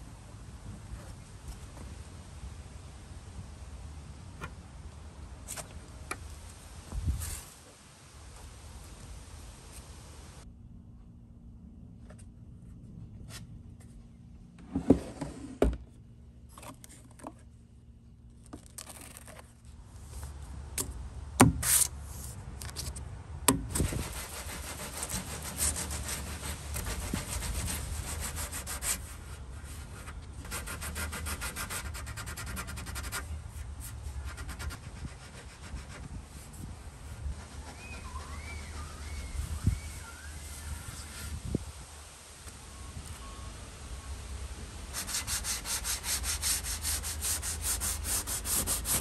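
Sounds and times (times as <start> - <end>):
sandpaper rasping on wood: 23.7 - 33.3, 44.9 - 49.0.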